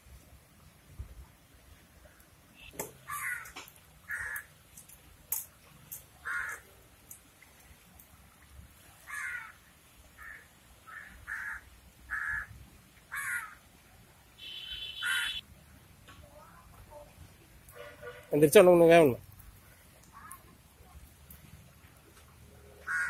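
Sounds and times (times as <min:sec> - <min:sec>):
bird calling: 0:14.4 - 0:15.4.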